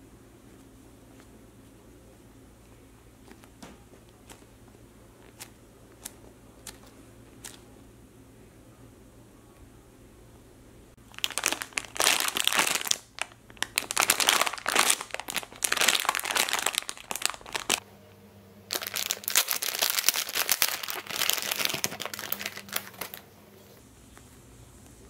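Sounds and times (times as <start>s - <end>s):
plastic bag crinkling: 5.2s - 7.6s, 11.0s - 17.8s, 18.7s - 23.3s.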